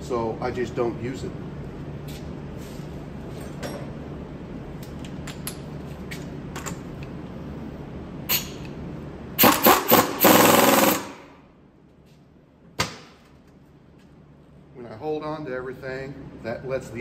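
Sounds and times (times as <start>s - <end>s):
steady low hum: 0.0s - 17.0s
impact wrench bursts: 9.4s - 11.4s.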